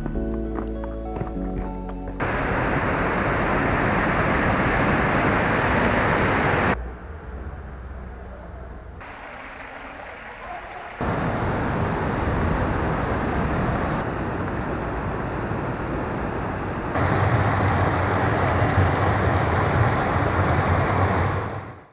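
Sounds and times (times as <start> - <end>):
water rushing over weir: 2.2 - 6.8, 9.0 - 14.8, 16.9 - 21.9.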